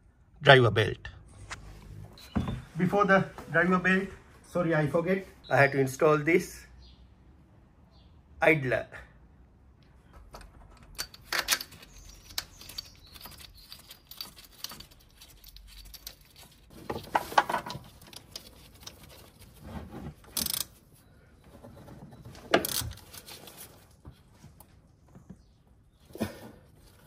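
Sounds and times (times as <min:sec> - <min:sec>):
metal clinks and scrapes: 0:10.7 - 0:20.9.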